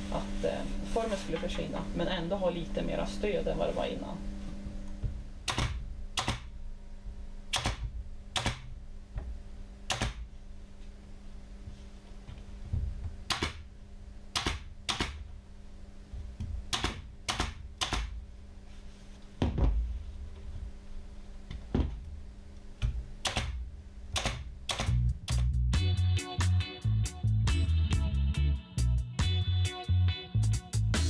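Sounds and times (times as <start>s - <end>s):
music: 24.8s - 31.0s.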